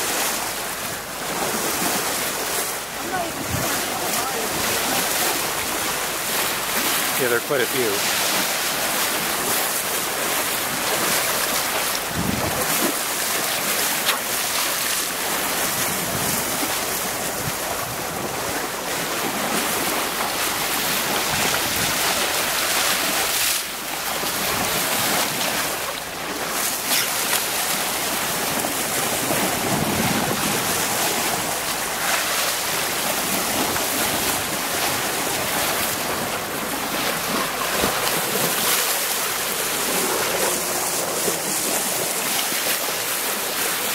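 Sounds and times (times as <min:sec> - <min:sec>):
bow wave splashing along hull: 0:00.0 - 0:43.9
wind buffeting microphone: 0:12.0 - 0:12.9.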